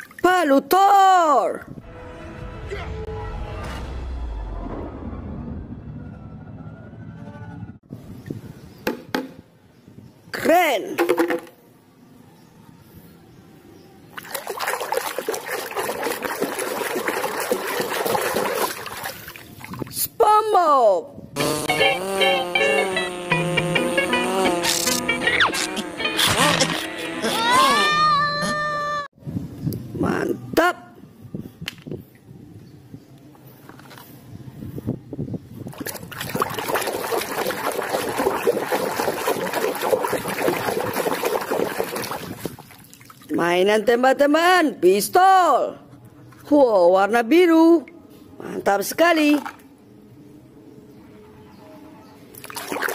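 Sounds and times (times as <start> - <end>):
water splashing in a plastic tub: 14.1 - 20.0, 35.7 - 43.4, 52.3 - 52.9.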